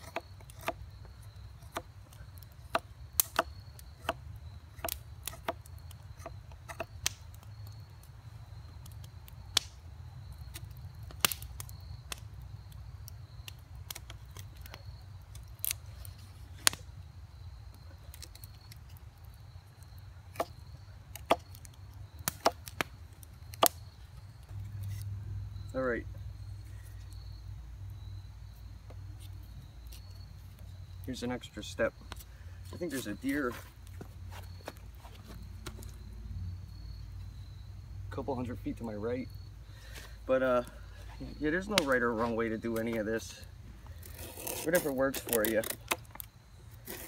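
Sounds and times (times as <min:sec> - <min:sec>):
knife shaving wood: 0:00.0 - 0:07.0, 0:43.9 - 0:47.0.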